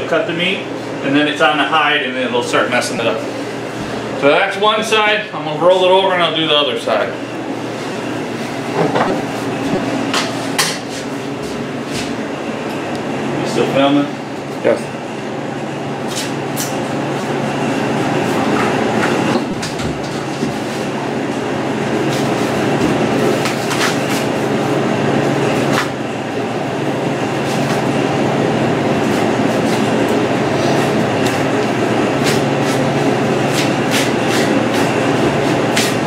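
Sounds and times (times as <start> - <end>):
machine drone with low hum: 0.0 - 36.0.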